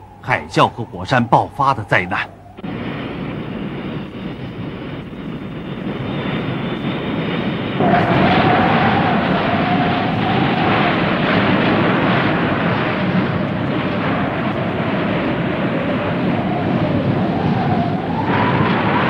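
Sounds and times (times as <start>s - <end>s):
faint wavering tone: 0.0s - 2.6s.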